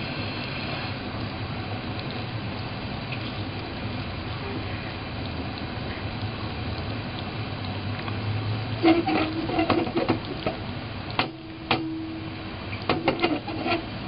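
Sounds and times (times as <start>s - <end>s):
steady hiss: 0.0s - 14.0s
saucepan scraping on stove grate: 8.8s - 10.6s, 12.8s - 14.0s
sharp metallic knocks: 11.2s - 12.2s.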